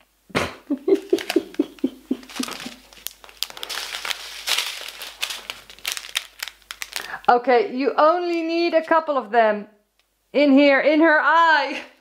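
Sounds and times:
plastic packaging crinkling: 0.8s - 7.4s, 8.0s - 9.0s.

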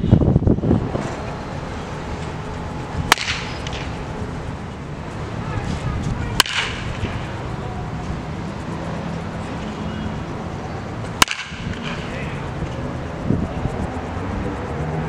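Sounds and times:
bat cracking against ball: 3.0s - 4.1s, 5.6s - 7.3s, 11.1s - 12.1s.

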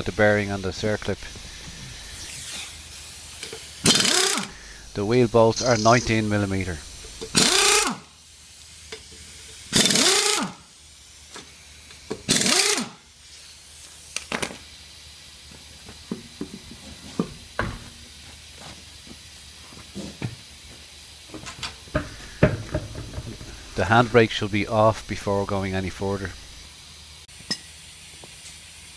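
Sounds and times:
pneumatic impact wrench bursts: 0.1s - 15.2s, 21.6s - 26.6s.

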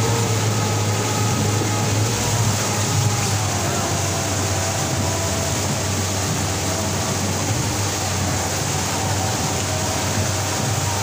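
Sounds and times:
rushing water: 0.0s - 11.0s
speedboat engine drone: 0.0s - 11.0s
wind noise: 0.0s - 11.0s.

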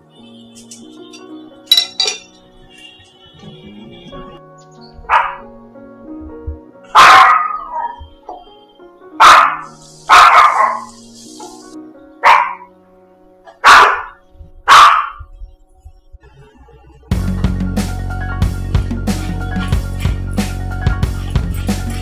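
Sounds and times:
faint background music: 0.0s - 22.0s
small dog barking: 5.1s - 5.4s, 6.9s - 8.0s, 9.2s - 10.9s, 12.2s - 12.7s, 13.5s - 15.2s.

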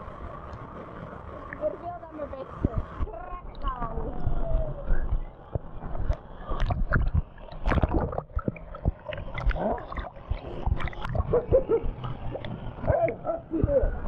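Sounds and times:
waves knocking against camera: 5.0s - 13.8s
river water splashing: 6.0s - 13.4s.

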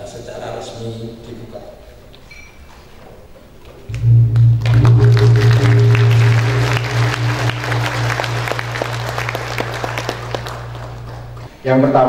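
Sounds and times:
gong struck with mallet: 3.9s - 11.4s
audience applause: 3.9s - 11.5s.

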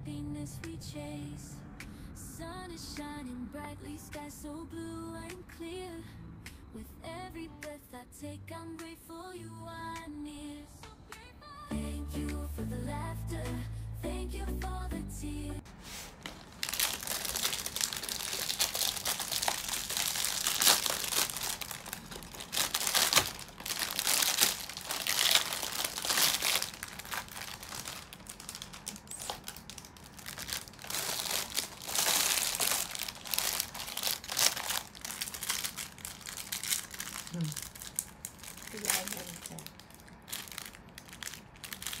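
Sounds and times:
packaging crinkling and rustling: 16.0s - 42.0s.

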